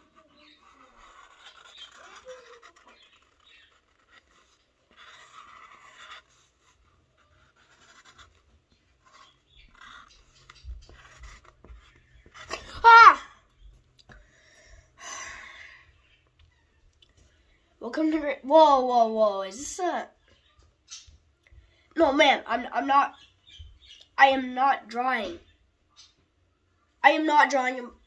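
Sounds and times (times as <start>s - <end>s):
cardboard scratching and rustling: 0.0s - 12.9s.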